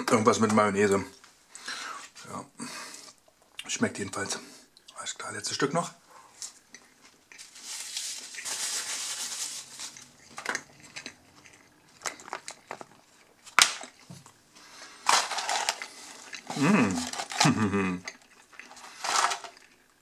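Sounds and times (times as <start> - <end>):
paper napkin rustling: 7.4 - 10.4.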